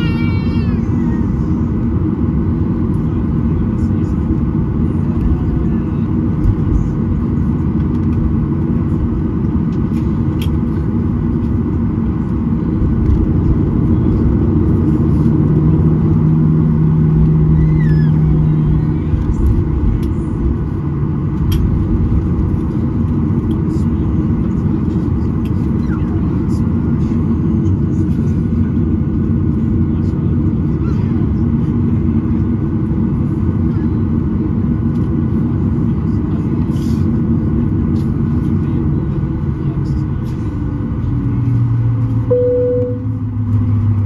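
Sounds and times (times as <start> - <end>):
aircraft cabin rumble while taxiing: 0.0 - 44.0
low hum: 42.3 - 44.0.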